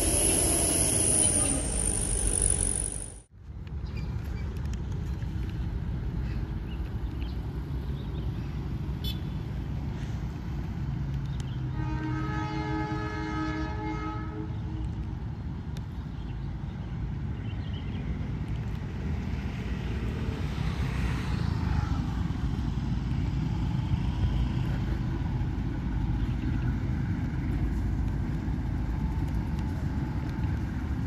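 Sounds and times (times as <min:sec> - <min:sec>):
steady low rumble: 0:00.0 - 0:03.2
locomotive horn blast: 0:11.7 - 0:14.5.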